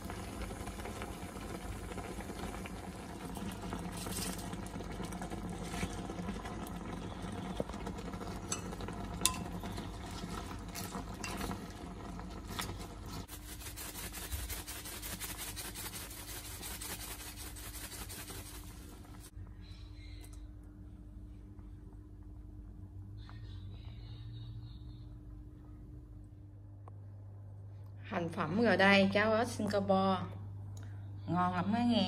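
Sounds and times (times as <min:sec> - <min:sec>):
sauce bubbling and sizzling: 0:00.0 - 0:19.3
low steady hum: 0:00.0 - 0:32.0.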